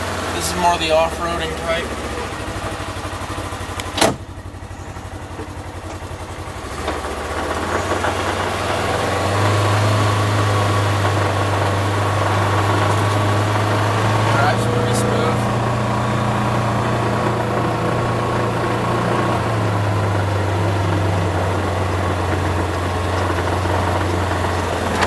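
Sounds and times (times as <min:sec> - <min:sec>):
vehicle engine: 0:00.0 - 0:25.0
sharp clunk: 0:03.8 - 0:04.2.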